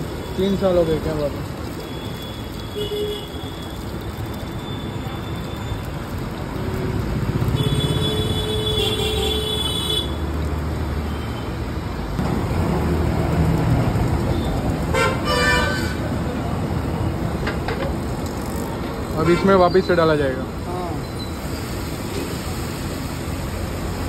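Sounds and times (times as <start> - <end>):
batter frying hiss: 0.0 - 24.0
vehicle horn: 14.9 - 16.0.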